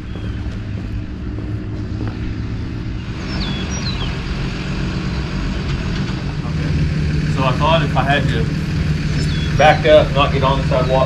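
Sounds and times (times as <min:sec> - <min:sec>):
truck engine droning: 0:00.0 - 0:11.0
small bird chirping: 0:03.0 - 0:04.2, 0:09.1 - 0:09.6.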